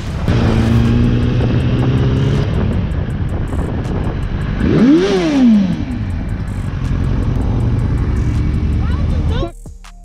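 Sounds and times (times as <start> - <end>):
motorcycle engine: 0.0 - 9.5
wind noise: 0.0 - 9.5
engine revving sharply: 0.2 - 2.7.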